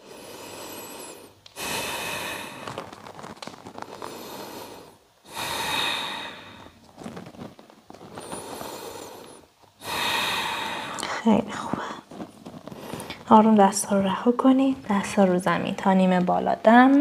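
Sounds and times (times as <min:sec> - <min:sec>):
person breathing deeply: 0:00.0 - 0:02.9, 0:03.8 - 0:06.8, 0:08.1 - 0:13.2.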